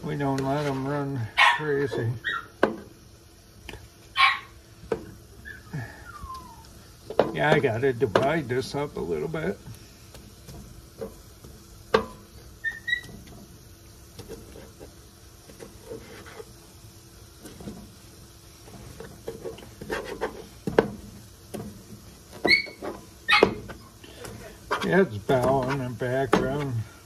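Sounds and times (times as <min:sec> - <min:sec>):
utensil scraping on griddle: 0:00.0 - 0:27.0
dog whining: 0:01.4 - 0:02.6, 0:04.2 - 0:04.6, 0:05.4 - 0:06.8, 0:12.6 - 0:13.2, 0:22.4 - 0:23.6.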